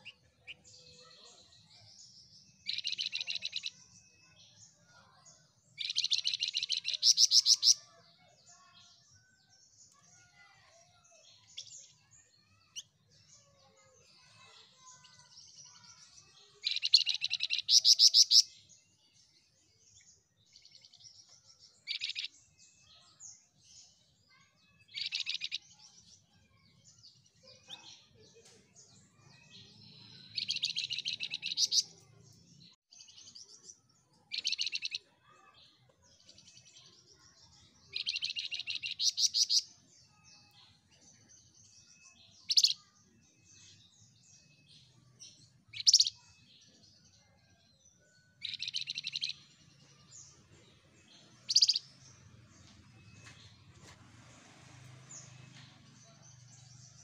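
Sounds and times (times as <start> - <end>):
soft bird twittering: 0.0 - 9.0, 19.8 - 47.1, 48.0 - 53.9
songbird chattering trills: 2.6 - 3.7, 5.8 - 7.9, 16.6 - 18.5, 30.2 - 32.0, 34.3 - 35.0, 37.9 - 39.7, 45.7 - 46.3, 51.2 - 51.9.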